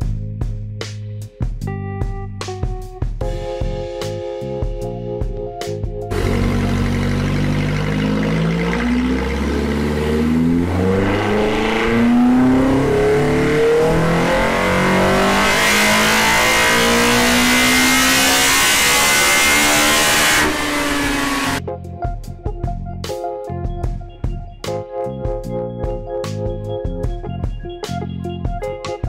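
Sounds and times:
car engine revving at full throttle: 0:06.1 - 0:21.6.

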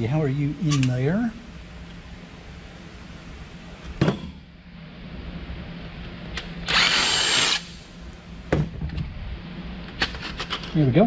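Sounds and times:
cordless drill running: 0:06.6 - 0:07.8.

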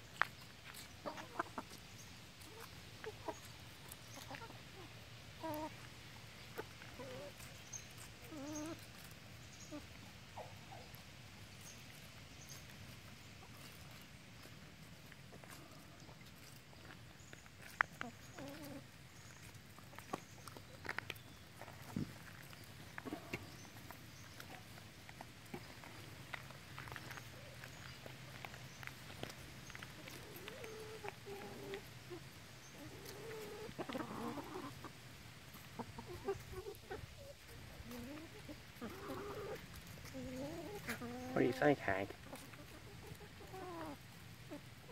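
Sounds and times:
chickens clucking: 0:00.0 - 0:44.9.

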